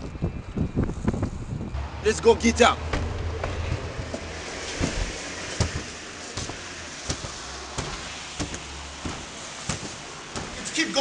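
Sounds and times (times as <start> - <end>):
revolving door rushing: 2.8 - 10.8.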